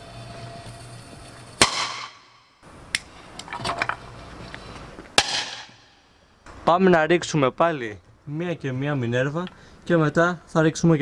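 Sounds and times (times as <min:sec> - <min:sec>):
firecracker bangs in plastic bottle: 0:01.6 - 0:02.5, 0:05.2 - 0:05.8.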